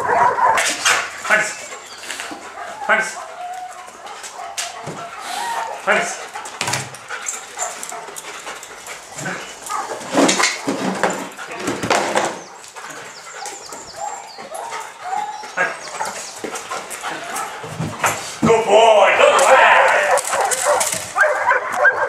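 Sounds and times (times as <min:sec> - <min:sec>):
dog barking: 0:00.0 - 0:01.0, 0:04.0 - 0:06.0, 0:19.2 - 0:22.0
dog whining: 0:01.6 - 0:05.9, 0:12.5 - 0:16.4.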